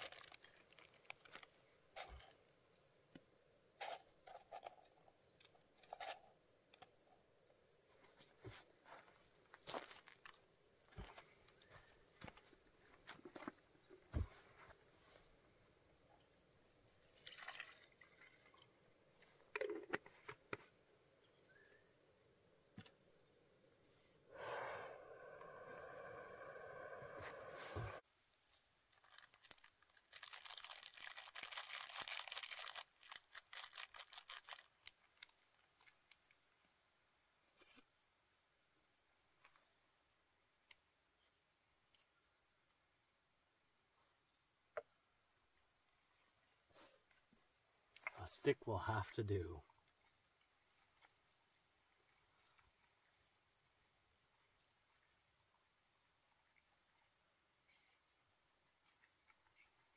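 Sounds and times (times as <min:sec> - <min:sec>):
rustling crinkle: 0:00.0 - 0:02.3, 0:28.8 - 0:36.0
insects chirring: 0:00.0 - 0:59.9
water pouring into a pot: 0:17.1 - 0:18.6.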